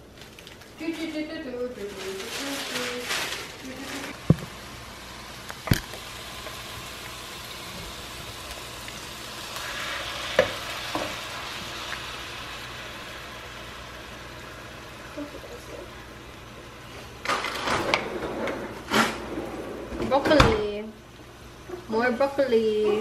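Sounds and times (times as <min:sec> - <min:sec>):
food sizzling in a pan: 0:01.9 - 0:17.2.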